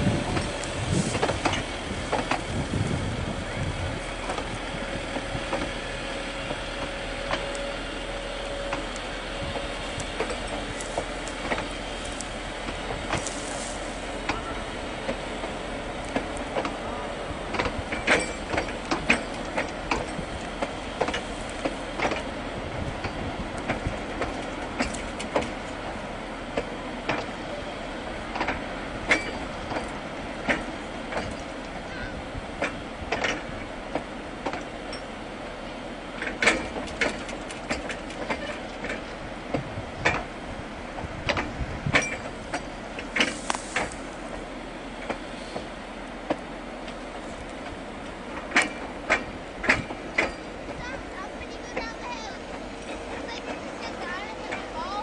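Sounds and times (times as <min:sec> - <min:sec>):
wheels clicking and knocking: 0:00.0 - 0:03.3, 0:08.7 - 0:25.9, 0:28.2 - 0:31.8, 0:36.2 - 0:55.0
train running on track: 0:00.0 - 0:55.0.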